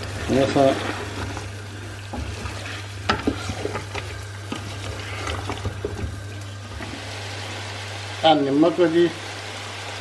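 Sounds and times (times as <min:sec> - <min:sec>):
wooden spoon scraping a metal pot: 0:00.0 - 0:07.1
spice masala sizzling in a pot: 0:00.0 - 0:10.0.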